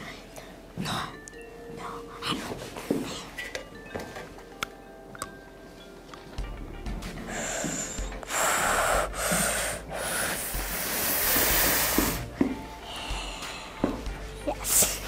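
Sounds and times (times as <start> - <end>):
child breathing out heavily: 7.3 - 14.0.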